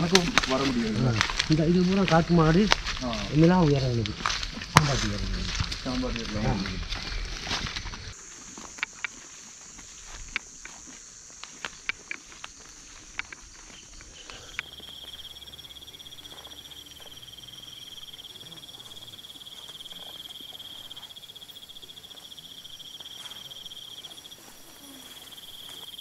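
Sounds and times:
insects trilling: 0.0 - 26.0.

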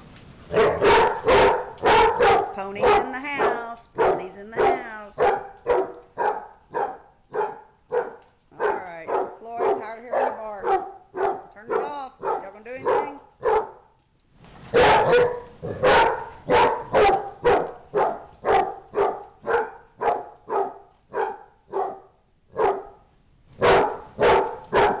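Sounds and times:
dog barking: 0.5 - 13.9, 14.7 - 23.0, 23.6 - 25.0.

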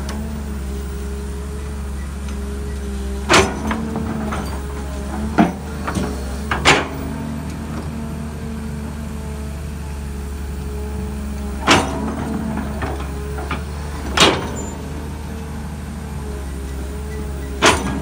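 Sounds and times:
excavator diesel engine running: 0.0 - 18.0
excavator bucket knocks: 11.6 - 14.7, 17.6 - 18.0.

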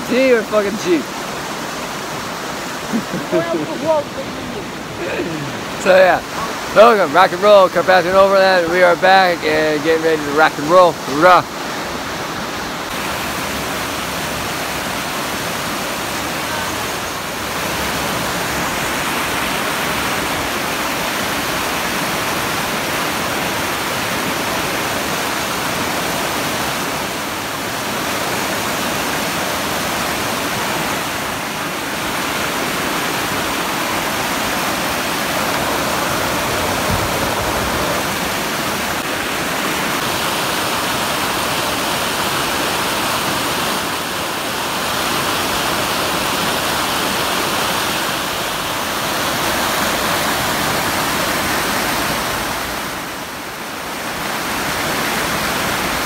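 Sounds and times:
steady rushing noise: 32.0 - 45.0.

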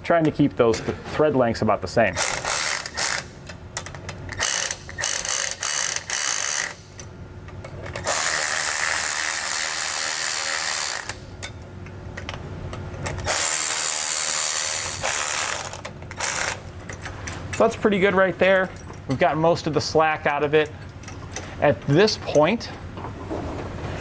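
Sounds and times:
cordless ratchet running: 2.2 - 3.3, 4.3 - 6.9, 8.0 - 11.2, 13.2 - 16.6.

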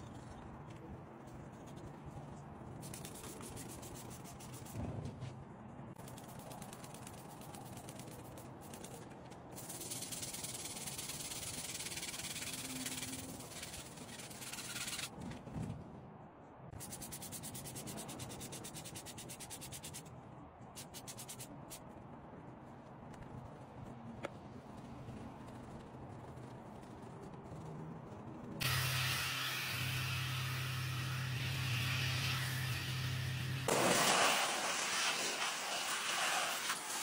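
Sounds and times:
hand scrubbing wet tyre: 9.6 - 15.1.

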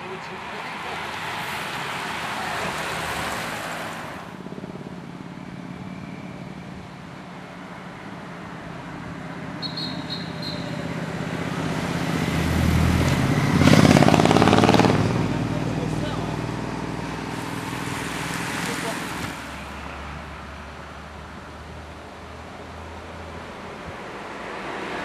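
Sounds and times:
passing traffic: 0.0 - 25.0
motorcycle engine approaching: 13.3 - 17.3.

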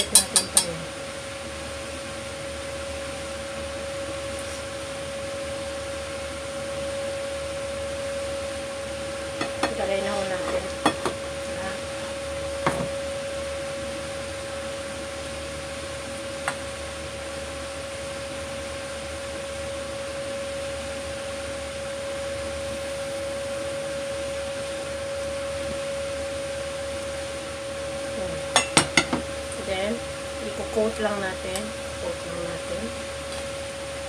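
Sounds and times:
appliance motor whirring hum: 0.0 - 34.0
constant mid-pitched tone: 6.6 - 14.8, 22.0 - 32.9.

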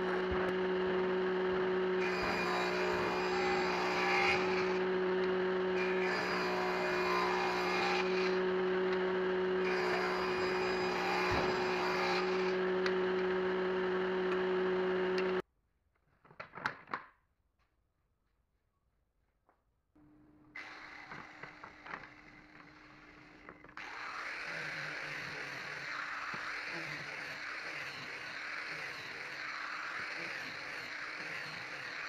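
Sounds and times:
table saw motor hum: 0.0 - 15.4, 20.0 - 32.0
saw blade cutting wood: 1.9 - 15.4, 20.6 - 32.0.

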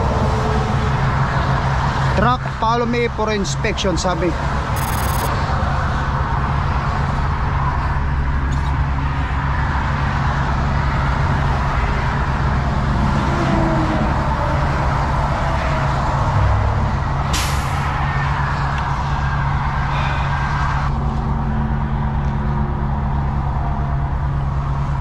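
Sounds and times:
air brake hiss: 17.3 - 17.8.

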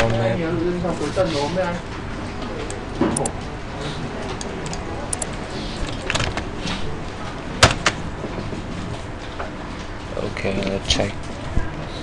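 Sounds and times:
keyboard keys clicking: 4.3 - 6.5.

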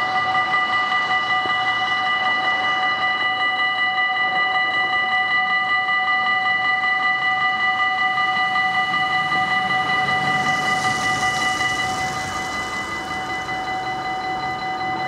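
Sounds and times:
level crossing bell ringing: 6.1 - 15.0.

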